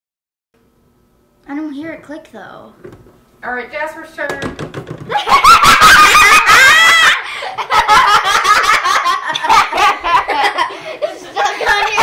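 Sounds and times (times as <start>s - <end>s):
children laughing: 5.1s - 12.0s.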